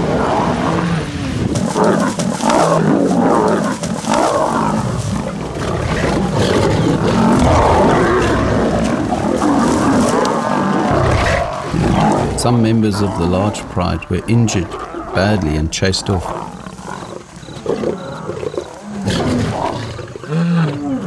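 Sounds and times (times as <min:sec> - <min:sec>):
lions roaring and snarling: 0:00.0 - 0:21.0.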